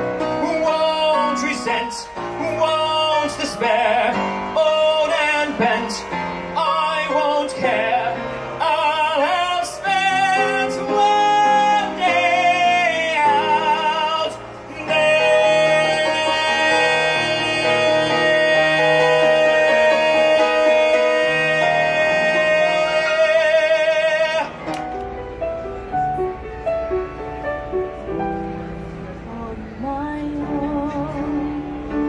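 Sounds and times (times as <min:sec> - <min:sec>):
piano accompaniment: 0:00.0 - 0:32.0
man singing into microphone: 0:00.2 - 0:24.6.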